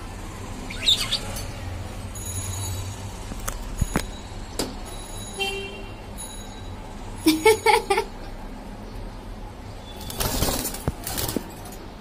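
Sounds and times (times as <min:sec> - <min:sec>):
budgerigar chirping: 0:00.6 - 0:01.4.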